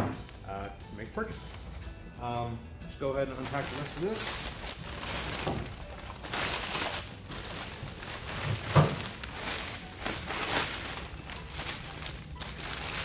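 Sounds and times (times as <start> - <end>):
plastic wrapping crinkling: 3.3 - 13.0
cardboard rustling: 3.5 - 13.0.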